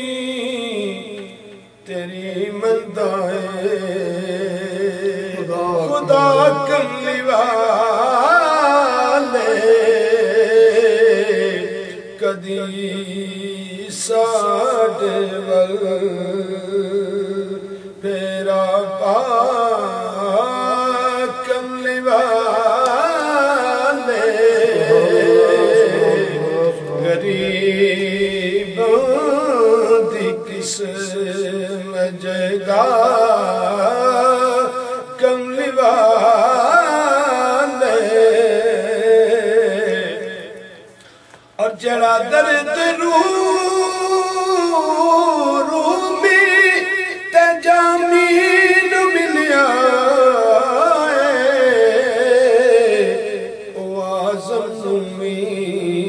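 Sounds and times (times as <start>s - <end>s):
man chanting: 0.0s - 40.9s, 41.6s - 56.0s.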